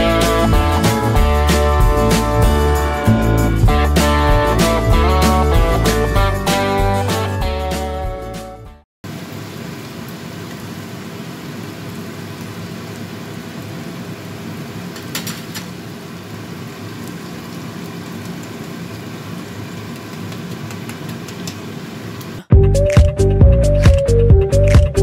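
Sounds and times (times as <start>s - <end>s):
background music: 0.0s - 8.8s, 22.5s - 25.0s
chicken sizzling in a frying pan: 9.1s - 22.2s.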